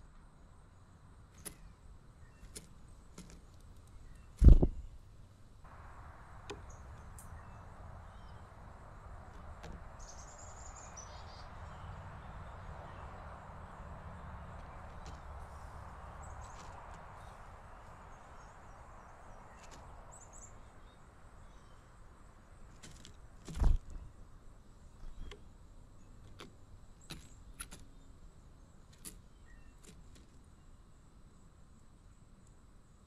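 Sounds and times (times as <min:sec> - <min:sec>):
outdoor noise wash: 0:00.0 - 0:33.0
faint high bird chirps: 0:01.4 - 0:02.6, 0:03.4 - 0:05.0, 0:06.4 - 0:08.6, 0:09.8 - 0:22.8, 0:26.9 - 0:30.8
loud thump: 0:04.4 - 0:04.8.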